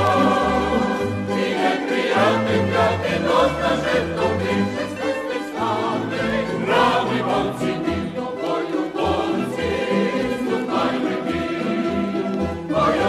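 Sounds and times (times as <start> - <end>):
choir singing a march: 0.0 - 13.0
instrumental accompaniment: 0.0 - 13.0.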